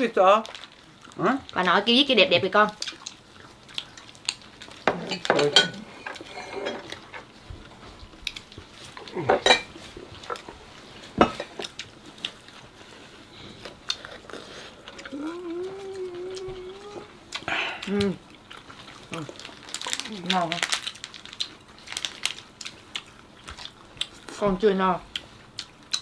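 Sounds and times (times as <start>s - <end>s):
cutlery and dishes clinking: 4.9s - 6.9s.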